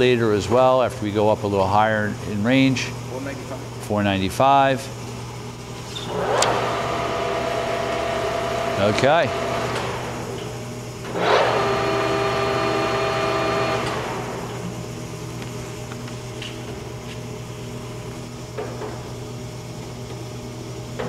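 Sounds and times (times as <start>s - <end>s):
motor hum: 5.0s - 21.0s
lathe gear whine: 6.0s - 15.3s.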